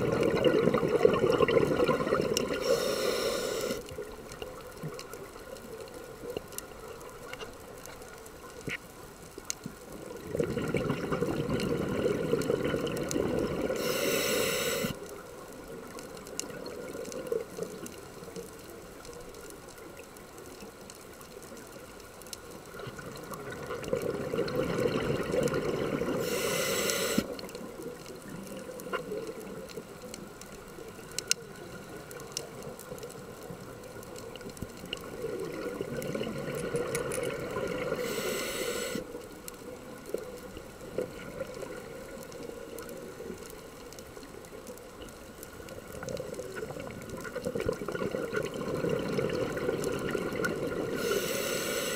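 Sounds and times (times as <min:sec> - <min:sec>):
scuba regulator bubbling exhalation: 0:00.0 - 0:03.8, 0:10.2 - 0:15.0, 0:23.4 - 0:27.4, 0:46.2 - 0:51.9
faint clicks: 0:02.2 - 0:11.7, 0:12.3 - 0:51.9.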